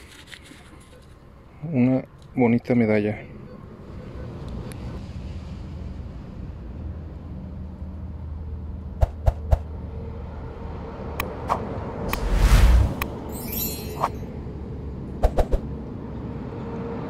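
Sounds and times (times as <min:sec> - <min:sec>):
whoosh: 0:09.0 - 0:09.7, 0:11.4 - 0:14.2, 0:15.2 - 0:15.6.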